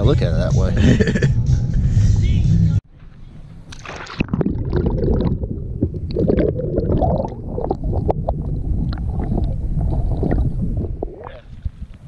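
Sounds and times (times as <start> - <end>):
bubbles: 3.8 - 11.8
muffled underwater churning: 3.8 - 12.0.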